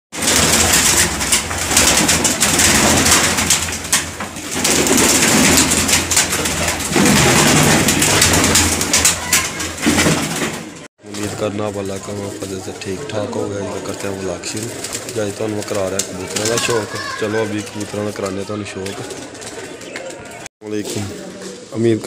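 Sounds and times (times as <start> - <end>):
wings flapping: 0.1 - 21.6
pigeons cooing: 11.1 - 22.0.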